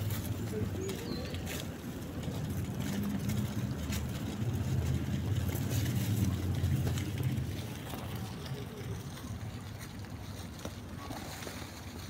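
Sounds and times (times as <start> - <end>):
pigeons pecking in dry leaves: 0.0 - 12.0
low steady rumble: 1.6 - 11.0.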